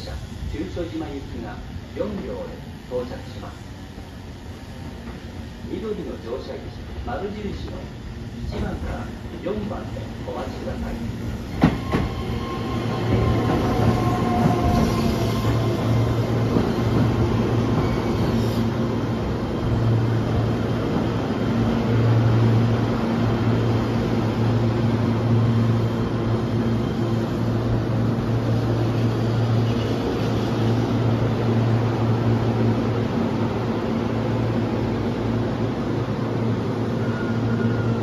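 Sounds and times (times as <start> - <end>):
electric train rolling and braking: 7.7 - 38.0.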